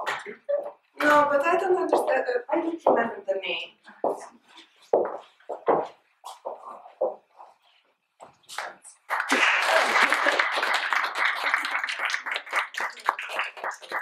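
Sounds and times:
small audience applauding: 9.0 - 14.0.

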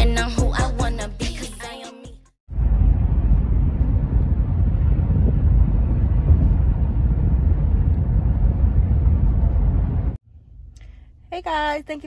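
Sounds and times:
road and wind noise inside car: 2.5 - 10.2.

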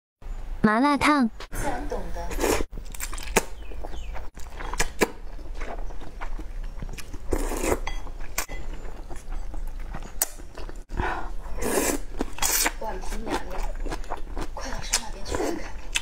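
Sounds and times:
person slurping noodles: 2.3 - 2.7, 7.1 - 7.9, 11.2 - 12.8
wet chewing smacks: 11.9 - 16.0.

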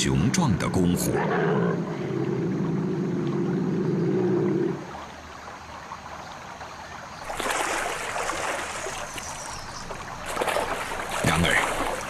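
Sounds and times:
animal splashing through water: 7.2 - 12.0.

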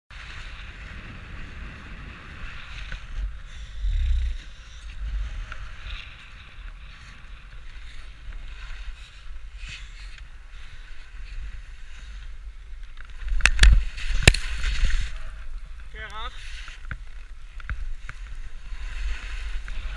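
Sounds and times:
wind rumbling on microphone: 0.1 - 19.9
skis hissing on snow: 18.0 - 19.9.

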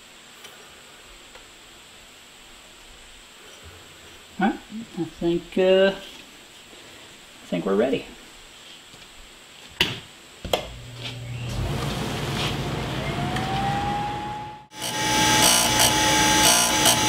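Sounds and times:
grinder motor whine: 10.5 - 17.0
grinding wheel on steel blade: 14.7 - 17.0.

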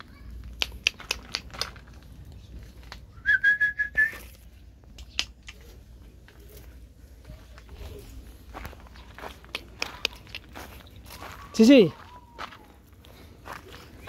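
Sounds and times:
handling clicks and knocks: 0.4 - 3.0
person whistling a steady note: 3.1 - 4.3, 11.4 - 12.8.

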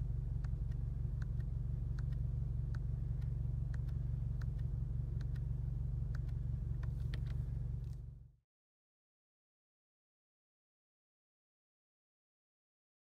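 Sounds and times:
car engine idling: 0.0 - 8.4.

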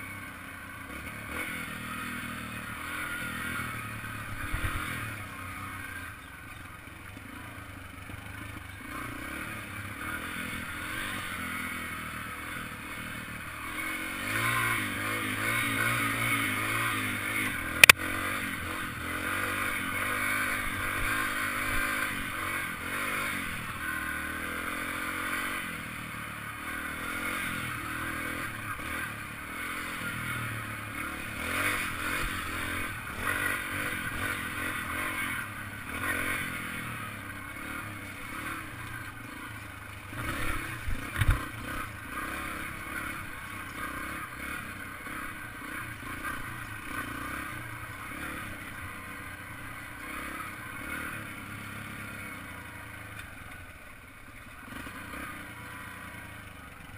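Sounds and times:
motorbike engine revving: 0.0 - 56.9.

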